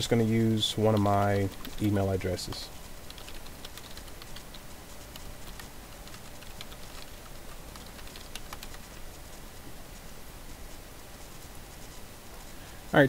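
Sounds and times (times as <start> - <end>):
computer keyboard typing: 0.0 - 9.7.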